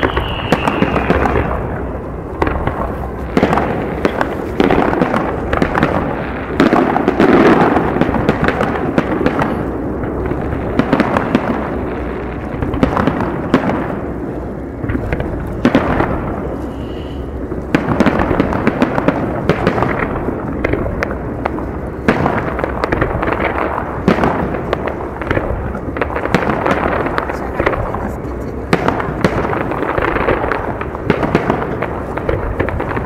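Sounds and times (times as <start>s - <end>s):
continuous rumble: 0.0s - 33.0s
firework bangs: 0.0s - 33.0s.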